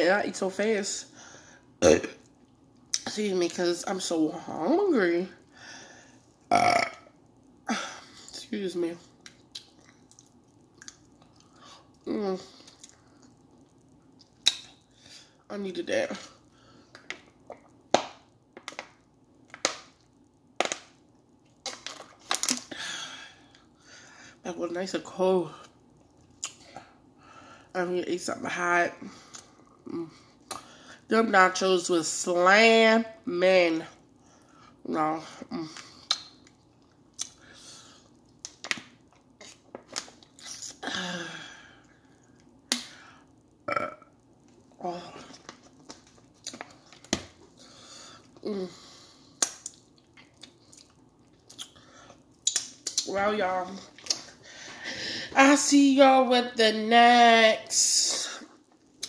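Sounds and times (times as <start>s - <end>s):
person chewing with wet smacks: 9.2s - 14.8s, 35.8s - 37.4s, 49.4s - 53.1s.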